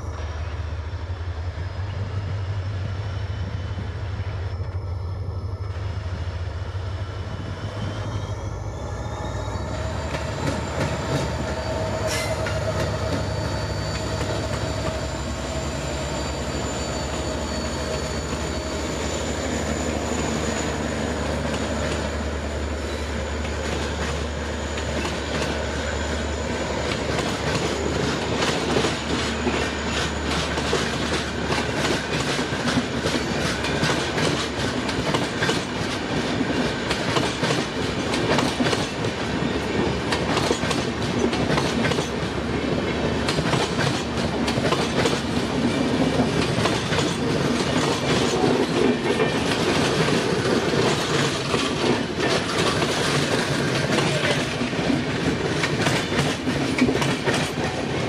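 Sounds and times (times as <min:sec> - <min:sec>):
diesel locomotive engine running: 0:00.0 - 0:58.0
high-pitched whine: 0:03.2 - 0:21.3
train wheels clicking over rail joints: 0:09.6 - 0:58.0.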